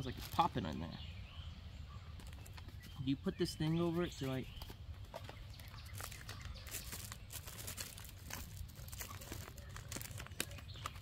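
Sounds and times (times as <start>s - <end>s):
plastic packaging crinkling: 5.6s - 11.0s.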